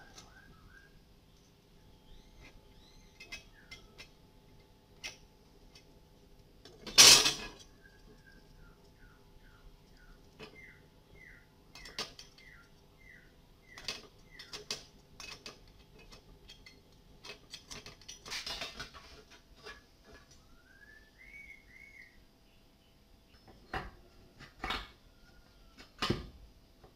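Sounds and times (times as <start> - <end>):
sharp metal clicks and scrapes: 13.7 - 20.3.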